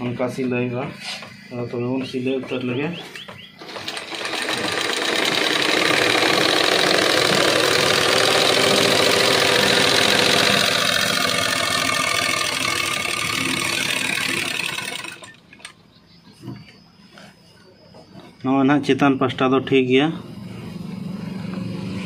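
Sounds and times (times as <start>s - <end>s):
sewing machine running fast: 3.6s - 15.4s.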